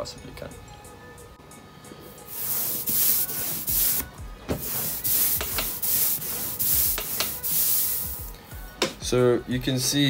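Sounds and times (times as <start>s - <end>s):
ink roller hissing: 2.3s - 8.3s.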